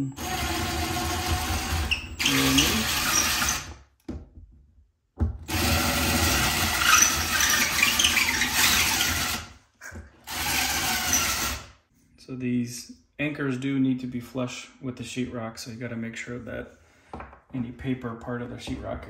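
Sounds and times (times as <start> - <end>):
cordless drill boring into drywall: 0.1 - 3.8, 5.5 - 9.5, 10.2 - 11.7.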